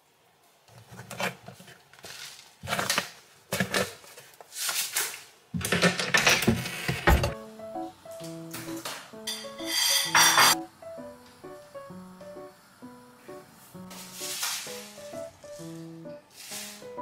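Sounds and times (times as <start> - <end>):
objects rustling and clattering: 0.5 - 7.4, 13.8 - 17.0
soft background music: 7.2 - 17.0.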